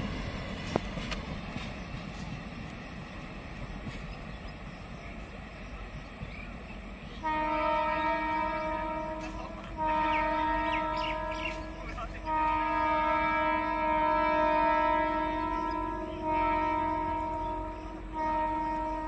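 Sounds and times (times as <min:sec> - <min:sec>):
train horn blasts: 0:07.0 - 0:19.0.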